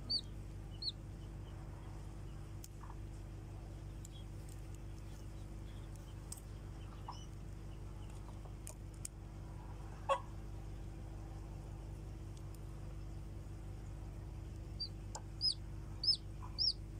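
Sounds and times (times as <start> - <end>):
steady low hum: 0.0 - 16.9
chickens clucking: 10.0 - 10.3, 15.2 - 16.8.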